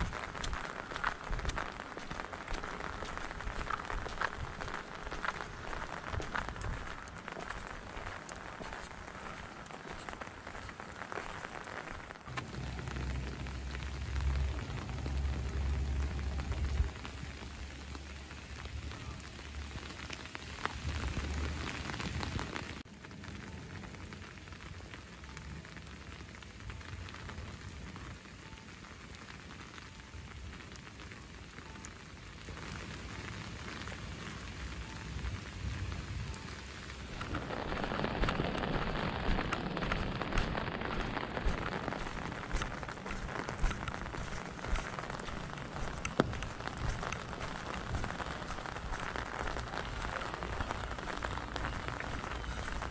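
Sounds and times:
raindrops pattering on umbrella: 0:00.0 - 0:52.9
steady rain falling: 0:00.0 - 0:52.9
low rumble: 0:12.3 - 0:24.0, 0:34.7 - 0:52.9.

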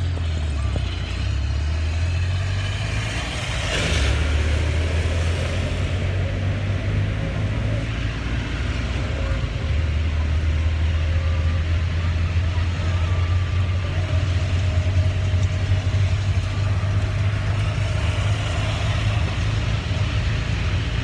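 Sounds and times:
low traffic rumble: 0:00.0 - 0:21.0
tyres hissing on wet road: 0:01.4 - 0:09.0, 0:09.7 - 0:21.0.

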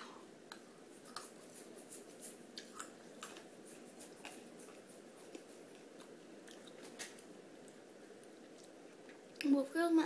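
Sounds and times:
faint room hiss: 0:00.0 - 0:10.0.

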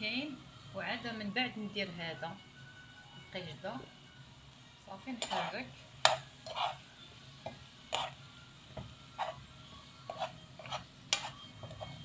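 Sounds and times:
food sizzling in pan: 0:03.5 - 0:12.0
spoon scraping frying pan: 0:05.2 - 0:06.9, 0:07.5 - 0:08.2, 0:09.1 - 0:12.0.

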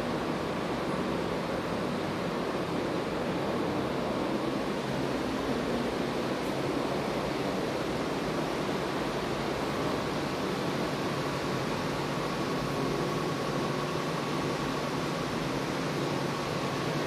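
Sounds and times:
steady rushing noise: 0:00.0 - 0:17.0.

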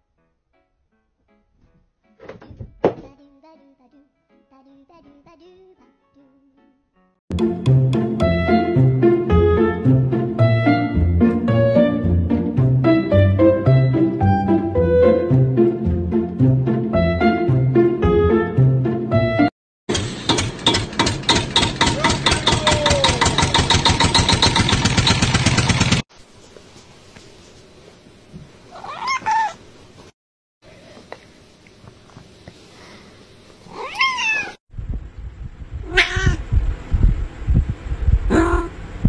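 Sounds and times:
cats meowing: 0:28.7 - 0:29.6, 0:33.7 - 0:34.6.

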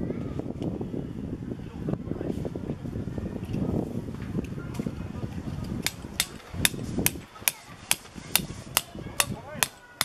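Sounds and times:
hammer striking tent peg: 0:05.8 - 0:09.8.

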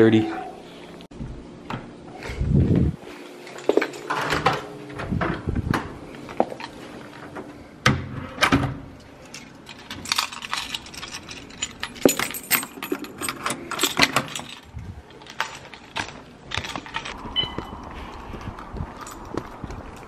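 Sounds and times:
keys jangling: 0:09.2 - 0:18.2, 0:18.9 - 0:20.0.

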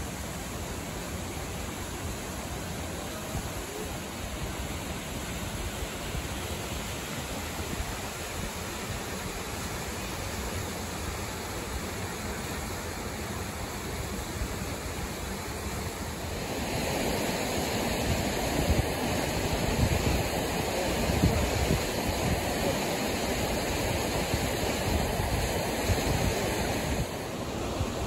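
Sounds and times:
mountain stream over rocks: 0:00.0 - 0:28.0
wind buffeting microphone: 0:16.4 - 0:27.2.

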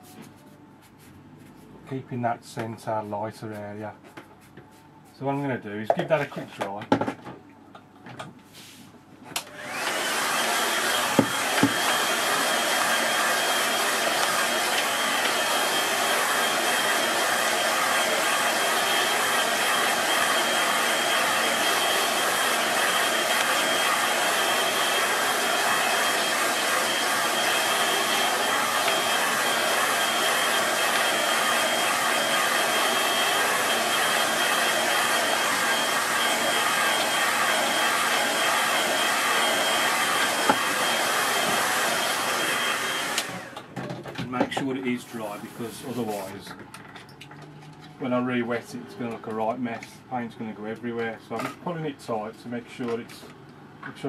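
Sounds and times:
hair dryer blowing: 0:09.4 - 0:46.4.

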